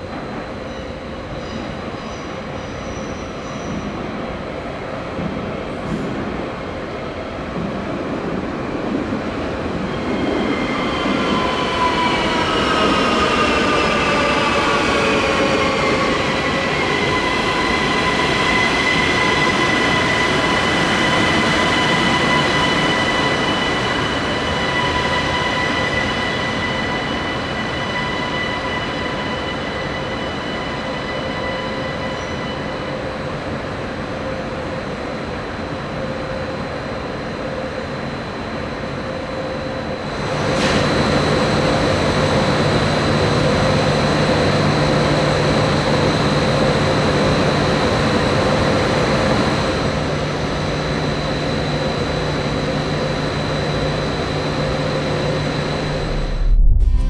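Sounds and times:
high whining tones: 54.9s - 57.0s
deep steady hum: 55.6s - 57.0s.

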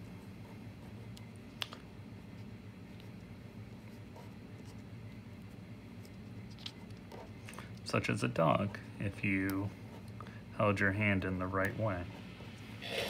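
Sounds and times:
low room hum: 0.0s - 13.0s
marker scratching on paper: 3.8s - 4.9s.

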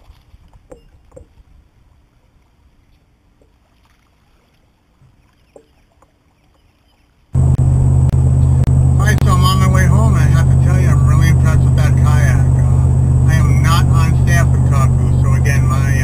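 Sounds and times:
water lapping on hull: 0.0s - 16.0s
vehicle cabin rumble: 7.4s - 16.0s.

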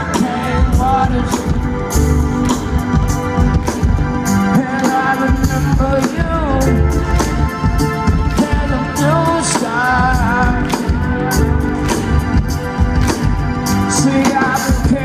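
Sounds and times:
live rock band: 0.0s - 15.0s
steady drum beat: 0.0s - 15.0s
person singing: 4.4s - 7.5s, 8.2s - 12.2s, 13.7s - 15.0s.

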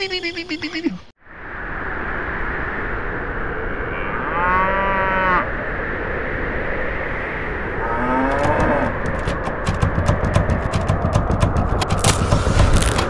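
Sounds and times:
steady rushing noise: 8.4s - 13.0s.

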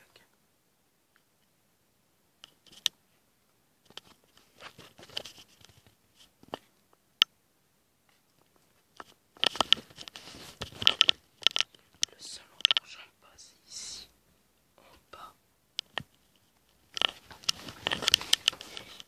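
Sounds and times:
crinkly rustles: 3.8s - 6.8s, 8.1s - 13.0s, 15.9s - 19.0s.

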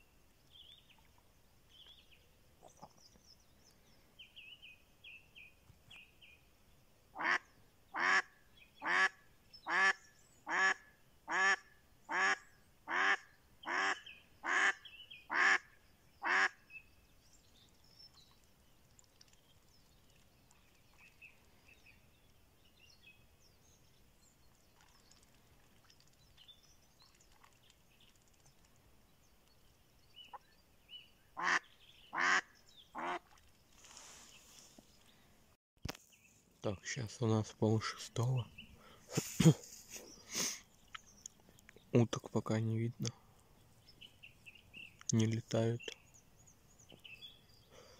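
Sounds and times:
duck quacking loudly: 8.0s - 15.6s, 16.2s - 16.6s, 31.4s - 33.2s.

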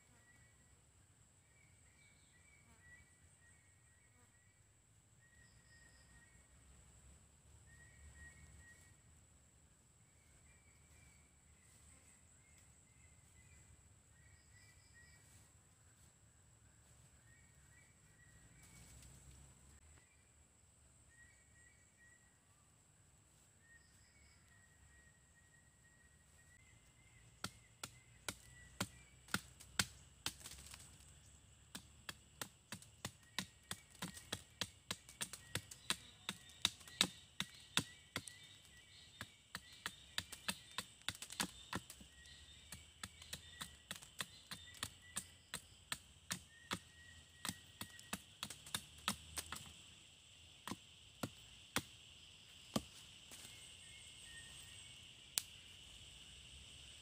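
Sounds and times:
machete chopping wood: 27.4s - 31.0s, 31.7s - 49.7s, 50.6s - 52.0s, 52.7s - 53.5s.

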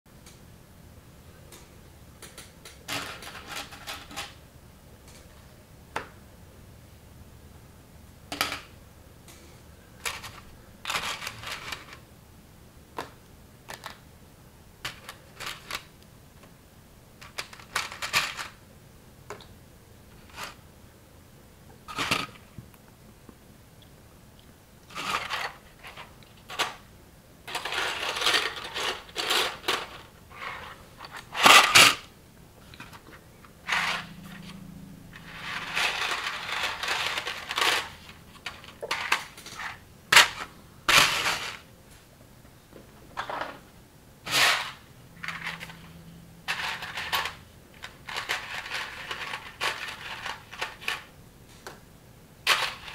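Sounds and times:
loose plastic pieces rattling: 2.3s - 4.4s, 10.0s - 12.0s, 13.7s - 14.0s, 14.8s - 15.9s, 17.2s - 18.6s, 24.9s - 26.8s, 27.5s - 32.1s, 33.7s - 34.1s, 35.2s - 41.7s, 46.5s - 51.1s, 52.4s - 52.9s.

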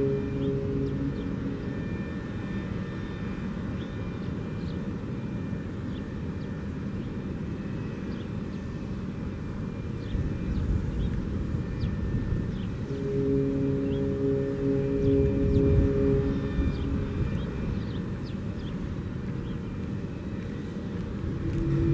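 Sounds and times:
steady low rumble: 0.0s - 2.8s, 12.6s - 18.2s, 20.8s - 21.9s
rotating warning siren chord: 0.0s - 21.9s.

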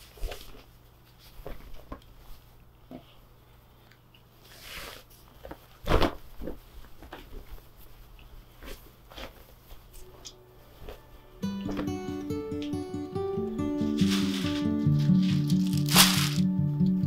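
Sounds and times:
cloth rustling: 13.8s - 16.5s.

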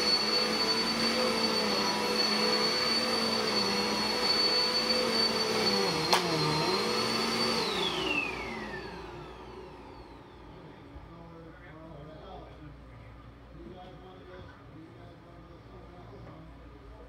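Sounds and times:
vacuum cleaner motor whine: 0.0s - 11.3s
vacuum cleaner switch click: 6.0s - 6.5s.

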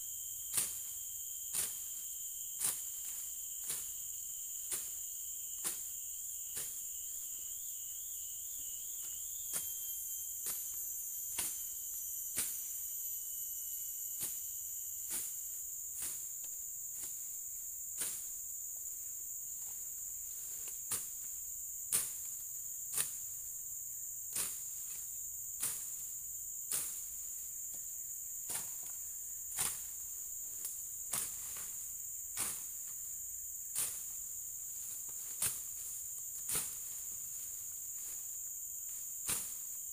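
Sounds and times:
insect chorus: 0.0s - 39.9s
blade swishing through grass: 31.1s - 32.8s, 33.7s - 38.3s, 39.2s - 39.7s.

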